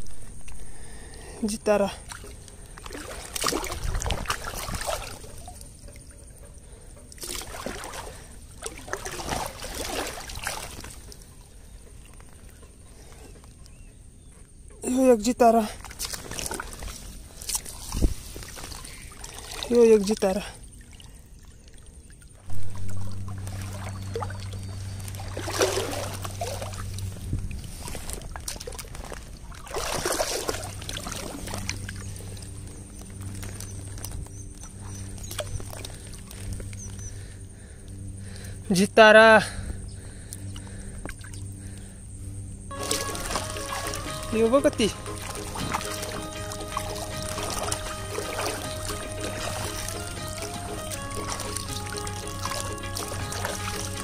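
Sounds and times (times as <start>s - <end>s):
creek water sloshing and splashing: 0.0s - 38.6s, 39.6s - 54.0s
steady low hum: 22.4s - 54.0s.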